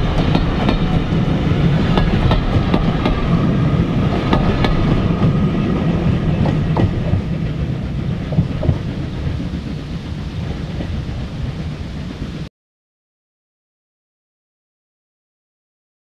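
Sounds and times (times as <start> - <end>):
wheels clicking over rail joints: 0.0 - 12.2
train rumbling: 0.0 - 12.5.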